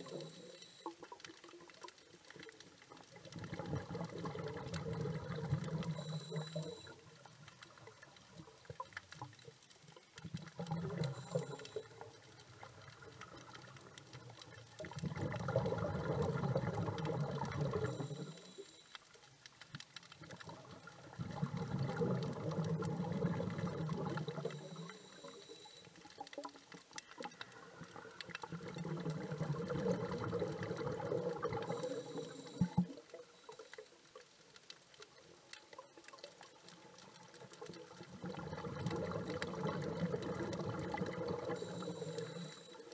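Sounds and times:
regulator inhalation hiss: 31.7 - 32.8, 41.6 - 42.8.

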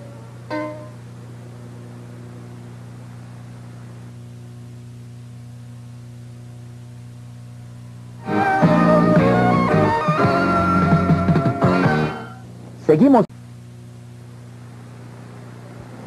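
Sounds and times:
music: 0.0 - 1.0, 8.2 - 12.5
electrical hum: 0.0 - 16.0
tape hiss: 0.0 - 16.0.

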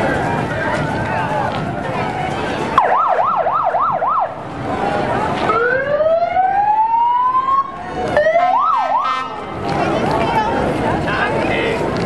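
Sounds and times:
siren rising wail: 2.8 - 4.4, 5.5 - 9.4
siren yelping: 2.8 - 4.4, 5.5 - 9.3.

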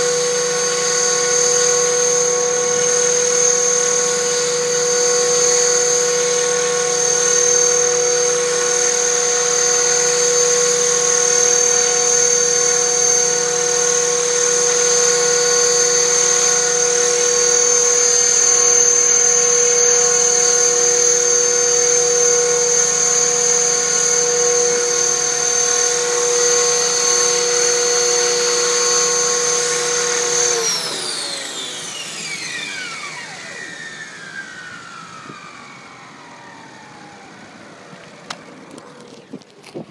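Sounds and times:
model helicopter motor whining: 0.0 - 39.9.

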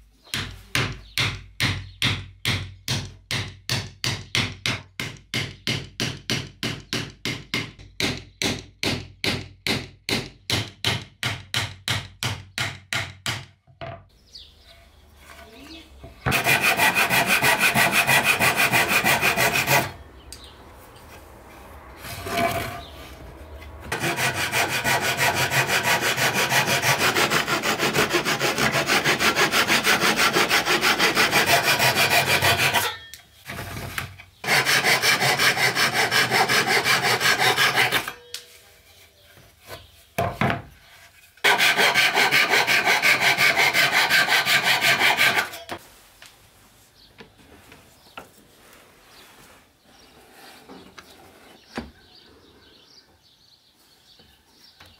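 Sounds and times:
handsaw cutting wood: 16.2 - 20.0, 23.9 - 33.0, 34.4 - 38.1, 41.4 - 45.8.

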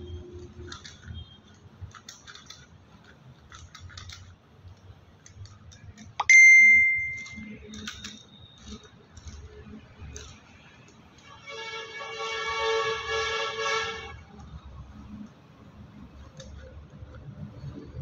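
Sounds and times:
small metal tools clicking: 0.4 - 11.0
bell-like metallic ding: 6.2 - 7.4.

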